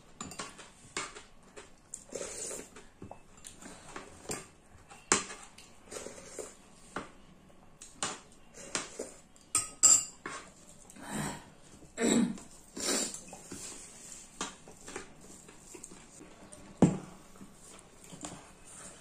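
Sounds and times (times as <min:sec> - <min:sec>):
spoons clinking against plates: 0:00.2 - 0:01.2, 0:08.8 - 0:10.6.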